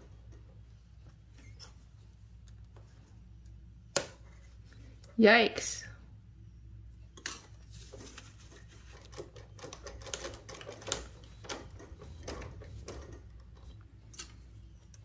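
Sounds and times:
embroidery machine clicking and clattering: 9.0 - 14.3.

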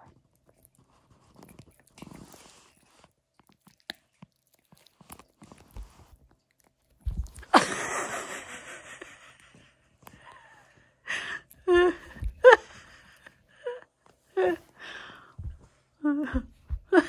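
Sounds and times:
dog chewing a treat: 0.1 - 7.6.

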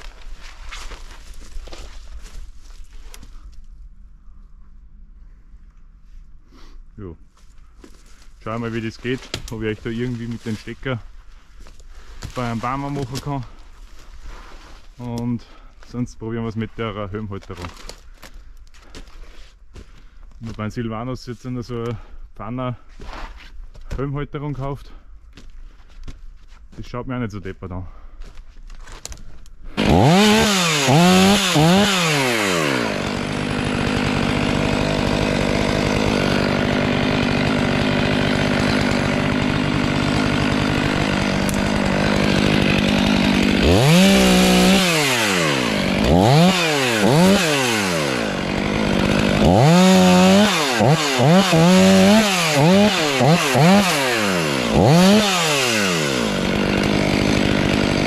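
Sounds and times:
chainsaw revving: 29.8 - 58.0.

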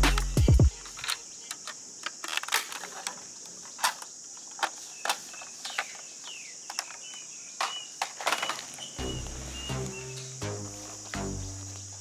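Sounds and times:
high insect hiss: 0.0 - 12.0
bird chirp: 4.8 - 12.0.

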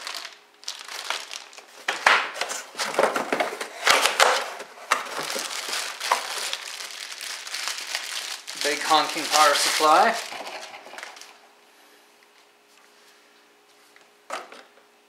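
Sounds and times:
plastic packaging crinkling: 0.0 - 11.5.

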